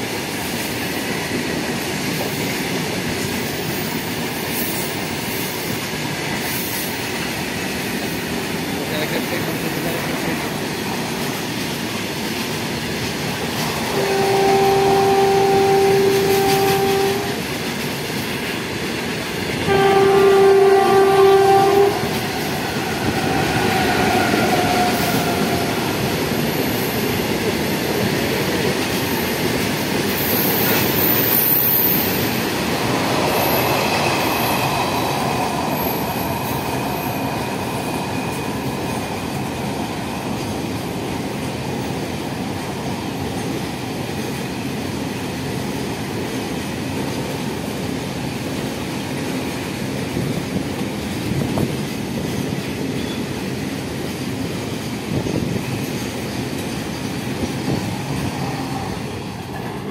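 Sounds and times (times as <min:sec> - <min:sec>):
train horn blasts: 0:13.8 - 0:17.4, 0:19.6 - 0:25.8.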